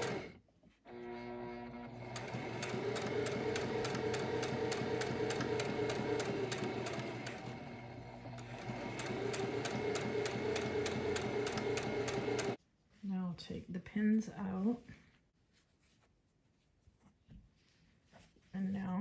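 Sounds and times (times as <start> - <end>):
sewing machine stitching: 0.0 - 12.6.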